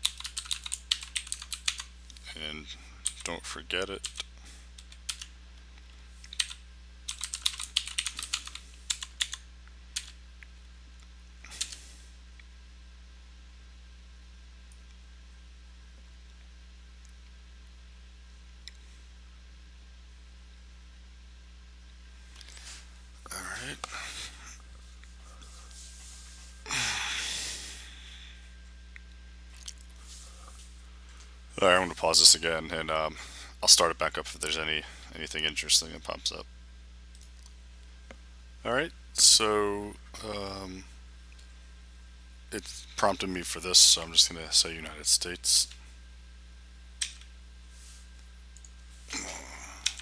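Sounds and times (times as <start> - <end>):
keyboard keys tapping: 0.0 - 1.8, 6.4 - 9.4
steady low hum: 0.0 - 50.0
person exhaling through nose: 26.6 - 28.4.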